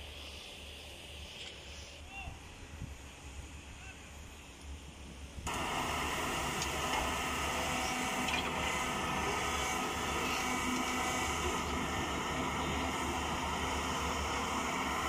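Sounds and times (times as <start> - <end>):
hydraulic whine: 5.4 - 15.0
excavator diesel rumble: 5.5 - 15.0.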